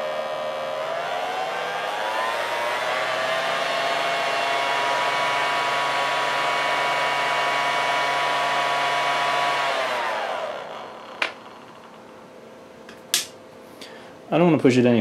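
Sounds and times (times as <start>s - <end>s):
small motor high whine: 0.0s - 12.7s
sharp click: 12.9s - 13.4s.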